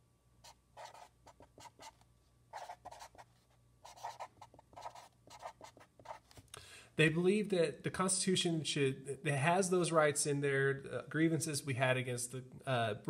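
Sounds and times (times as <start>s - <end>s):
marker writing on paper: 0.8s - 2.0s, 2.6s - 6.4s.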